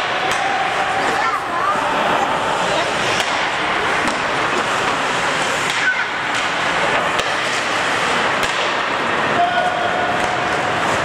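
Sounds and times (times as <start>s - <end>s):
sticks striking puck: 0.0s - 0.8s, 3.0s - 11.0s
skate blades scraping ice: 0.2s - 11.0s.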